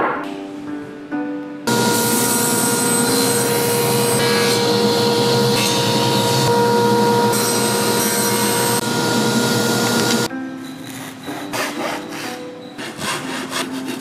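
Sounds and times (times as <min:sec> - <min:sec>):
table saw ripping boards: 0:01.7 - 0:10.3.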